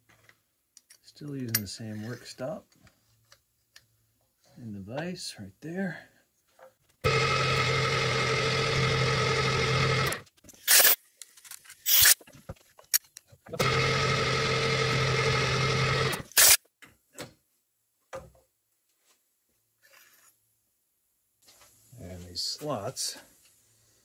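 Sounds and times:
electric motor running: 7.0s - 11.0s, 13.6s - 16.5s.

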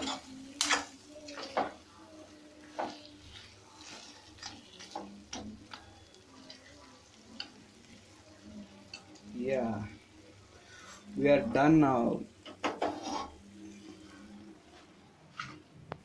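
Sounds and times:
metal spatula scraping a pan: 0.0s - 1.8s, 2.6s - 8.1s, 12.6s - 14.2s.

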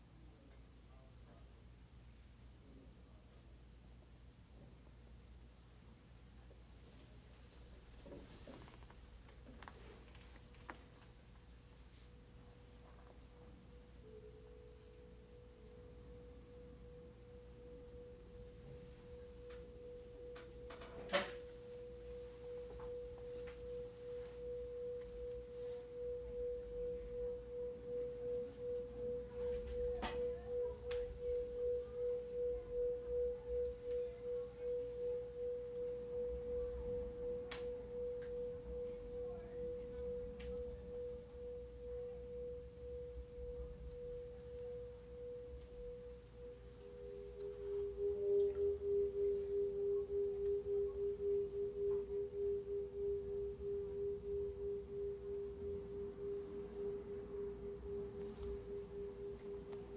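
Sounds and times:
pulsing sustained tone: 12.9s - 59.9s.

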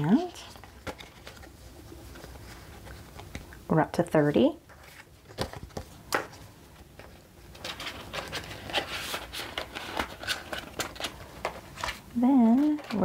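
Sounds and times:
paper bills rustling: 4.7s - 13.0s.

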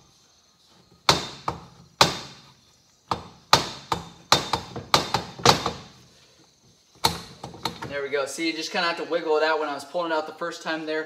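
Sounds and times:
sharp metallic knocks: 1.0s - 2.5s, 3.1s - 5.9s.

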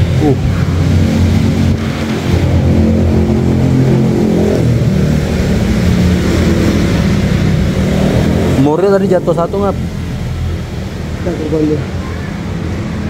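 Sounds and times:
car engine running: 0.0s - 11.8s.

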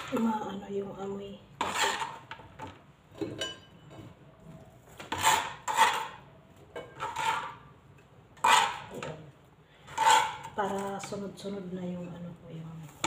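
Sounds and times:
knife scraping strokes: 1.6s - 2.2s, 5.1s - 6.2s, 7.0s - 7.6s, 8.4s - 9.0s, 9.9s - 10.6s
knife cutting onions on board: 5.0s - 6.2s, 8.4s - 9.1s, 9.9s - 10.9s.

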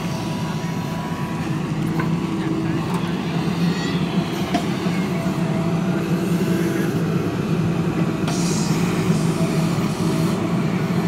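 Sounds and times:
diesel engine running under load: 0.0s - 11.0s.

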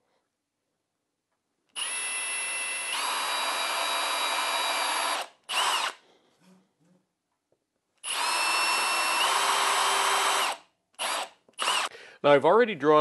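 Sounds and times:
cordless drill whining: 1.8s - 6.0s, 8.0s - 12.0s.

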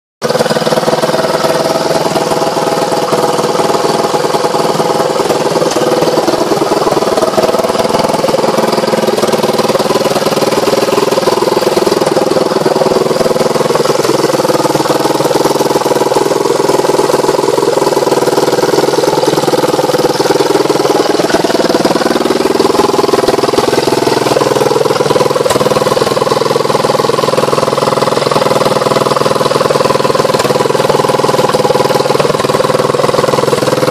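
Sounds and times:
motorcycle engine idling: 0.2s - 33.9s.

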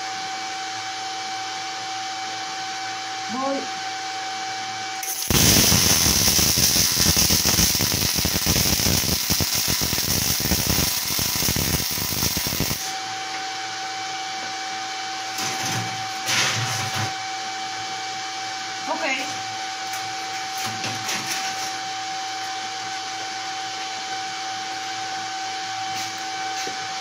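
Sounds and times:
welding arc crackling: 5.0s - 12.9s
steady hum: 5.0s - 13.4s.

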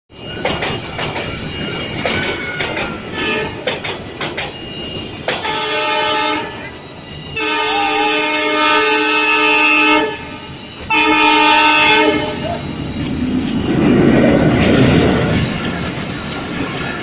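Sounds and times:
train wheels clacking over rail joints: 0.3s - 5.8s
locomotive horn honking: 3.2s - 3.6s, 5.4s - 6.6s, 7.4s - 12.6s.

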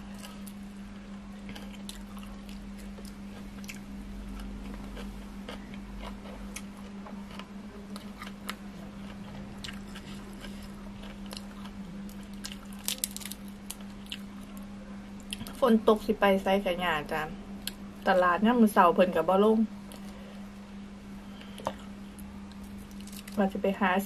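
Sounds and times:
low hum: 0.0s - 24.0s
chewing with crunches: 1.4s - 15.6s, 21.4s - 23.4s.

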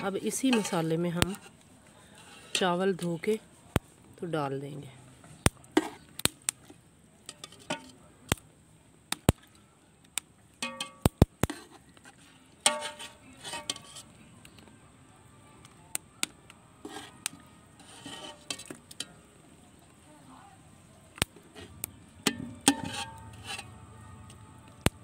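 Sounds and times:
metal skimmer clinking on pot: 10.6s - 11.0s, 22.2s - 23.7s.

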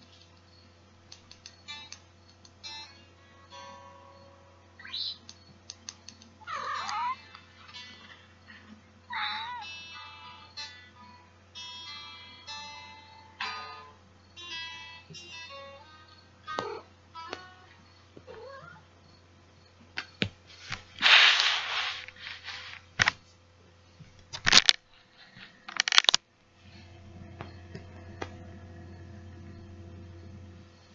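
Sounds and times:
cat meowing: 6.5s - 7.3s, 9.1s - 9.7s, 18.3s - 18.8s
rustling of bedding: 20.5s - 23.4s.

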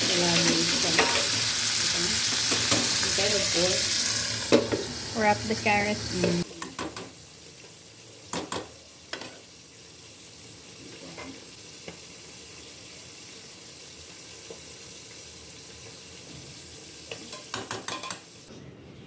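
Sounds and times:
rice sizzling in a wok: 0.0s - 18.5s.

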